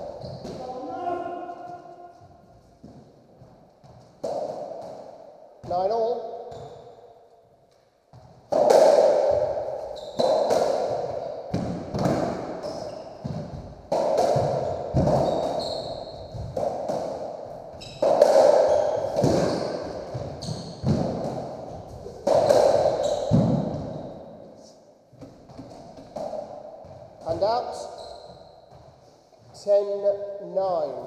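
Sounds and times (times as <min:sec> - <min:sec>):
squash ball smacks echoing: 0:04.0 - 0:06.2, 0:08.1 - 0:24.3, 0:25.2 - 0:27.6.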